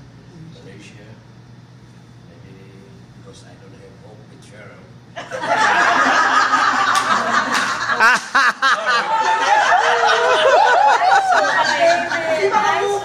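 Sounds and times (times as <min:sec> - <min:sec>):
group of people laughing: 0:05.2 - 0:13.0
people talking: 0:08.7 - 0:13.0.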